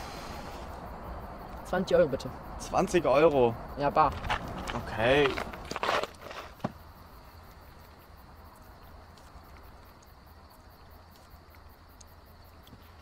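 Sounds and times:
insect chirring: 0.0 - 13.0
faint ticks: 10.8 - 13.0.

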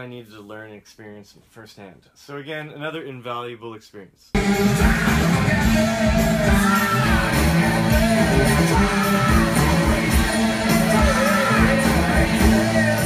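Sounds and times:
low drum and bass beat: 4.4 - 13.0
person singing: 4.4 - 13.0.

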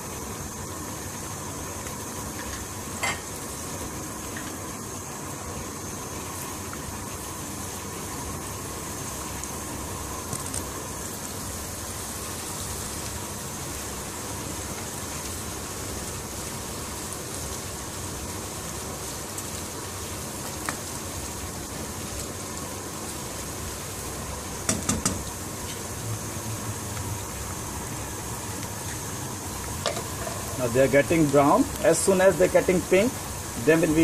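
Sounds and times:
onions sizzling in oil: 0.0 - 34.0
spoon knocking against pan: 24.7 - 25.2.

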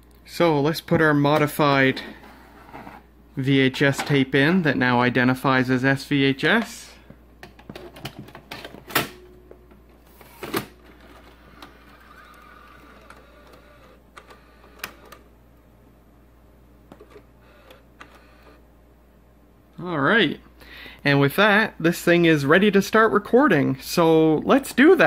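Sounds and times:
tape mechanism whir: 10.1 - 15.3, 16.9 - 18.6
tape mechanism clicks: 10.5 - 15.3, 16.9 - 18.6.

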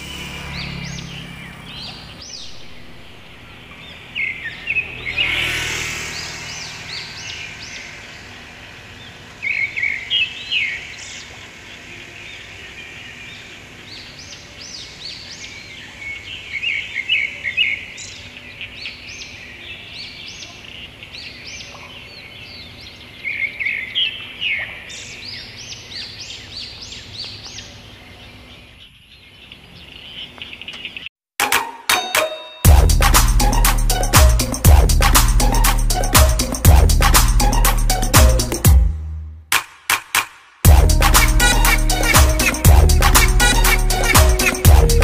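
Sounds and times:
small birds chirping: 0.0 - 31.1.

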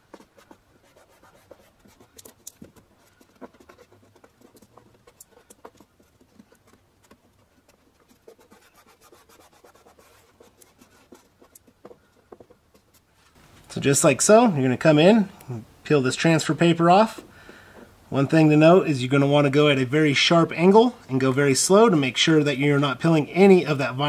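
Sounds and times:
fingers rubbing vinyl film: 0.0 - 13.4.

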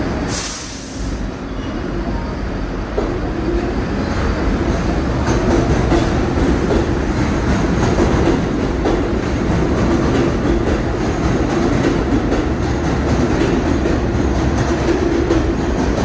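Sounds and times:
subway train rumbling: 0.0 - 16.0
brief hiss: 0.3 - 1.2
rail-joint clicks: 4.7 - 16.0.

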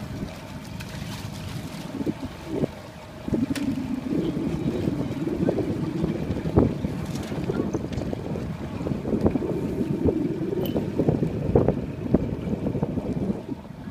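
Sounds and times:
water splashing around boats: 0.0 - 13.9
wind buffeting microphone: 0.0 - 13.9.

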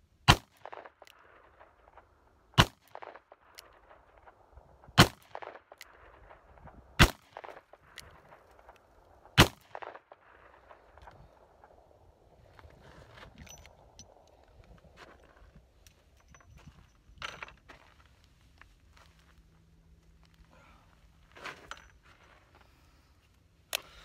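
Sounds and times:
gunshot echo: 5.0 - 7.8, 9.4 - 10.9
revolver gunshots: 5.0 - 7.8, 9.4 - 10.8.

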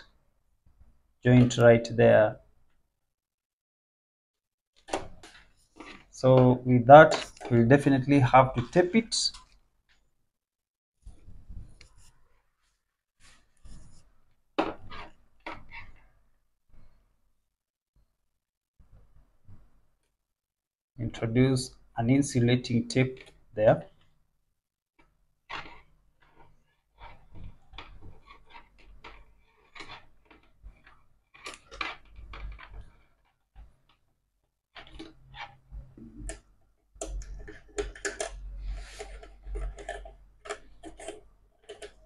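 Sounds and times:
wires rustling and scraping: 4.8 - 10.0, 11.0 - 14.2, 14.8 - 16.2, 25.0 - 34.1, 34.7 - 42.0.

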